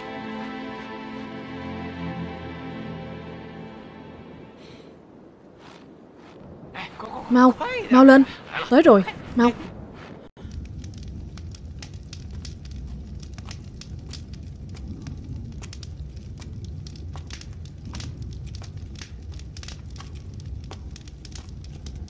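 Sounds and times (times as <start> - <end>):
fire crackling and popping: 0.0 - 4.0, 4.6 - 22.0
low rumble: 9.1 - 22.0.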